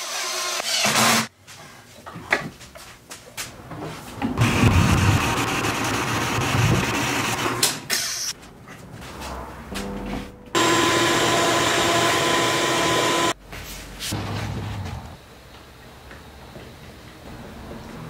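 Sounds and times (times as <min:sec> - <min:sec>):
power tool running noisily: 0:10.6 - 0:13.4.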